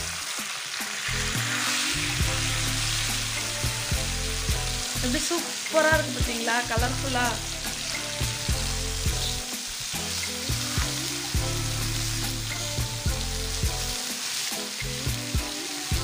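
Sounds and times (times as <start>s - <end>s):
fish sizzling on a griddle: 0.0s - 16.0s.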